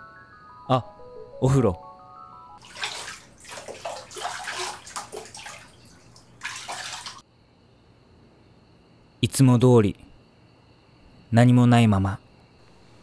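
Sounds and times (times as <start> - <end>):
bathwater splashing: 2.6 - 7.2.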